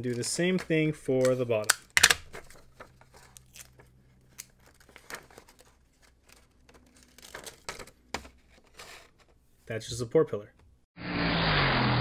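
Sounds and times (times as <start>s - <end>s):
paper and tape crinkling: 2.3s - 9.1s.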